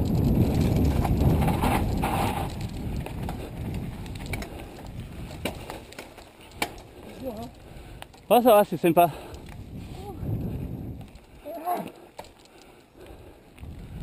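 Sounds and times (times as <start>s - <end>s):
wind on microphone: 0.0s - 5.8s, 9.2s - 11.6s, 13.5s - 14.0s
bike rumbling on dirt trail: 0.0s - 14.0s.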